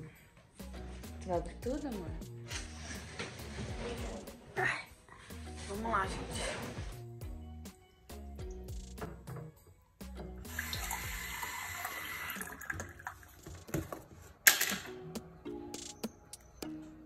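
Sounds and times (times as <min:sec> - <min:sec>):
background music: 0:00.0 - 0:17.0
water tap running: 0:10.4 - 0:13.8.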